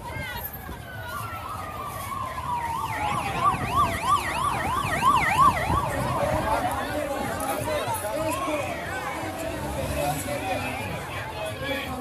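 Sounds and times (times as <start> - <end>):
siren falling wail: 1.0 - 6.8.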